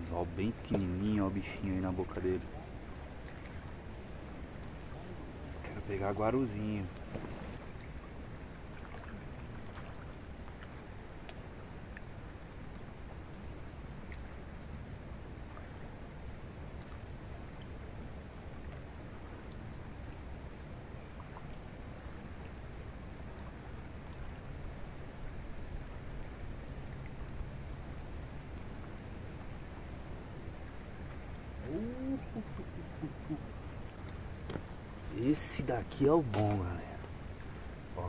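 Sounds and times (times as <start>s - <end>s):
low outdoor rumble: 0.0s - 38.0s
faint ticks: 8.7s - 13.0s, 13.9s - 14.4s, 18.6s - 20.2s, 32.6s - 35.2s.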